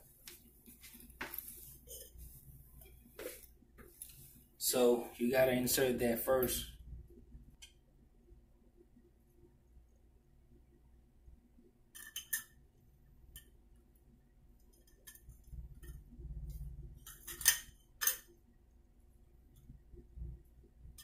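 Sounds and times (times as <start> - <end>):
metal pipe fittings clinking: 17.0 - 18.3.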